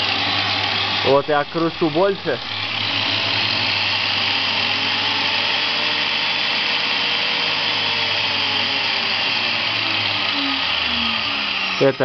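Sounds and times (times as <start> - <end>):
angle grinder running: 0.0 - 12.0.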